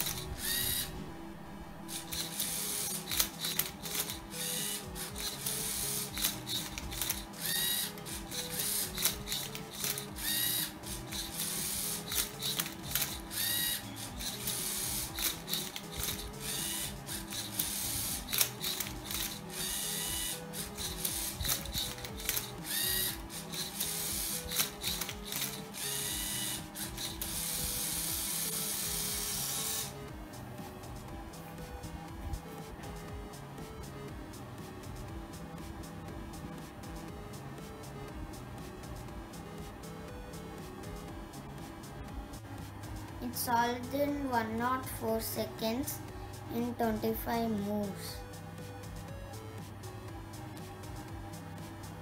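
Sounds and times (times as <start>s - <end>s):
robot motors whirring: 0.0s - 1.0s, 1.8s - 30.0s
rising motor whines: 0.0s - 43.0s
background music: 0.0s - 52.0s.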